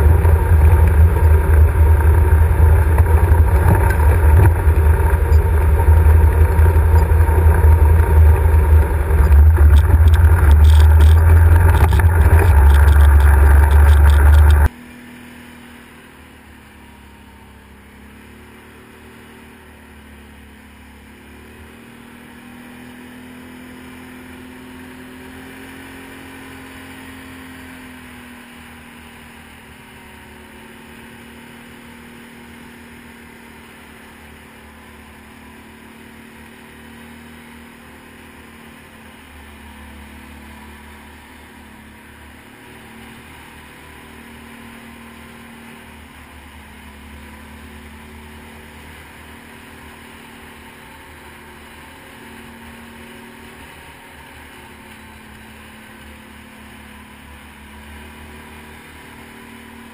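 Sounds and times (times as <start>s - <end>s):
atv engine rumble: 0.0s - 59.9s
faint engine drone: 0.0s - 59.9s
clicks: 3.0s - 14.7s.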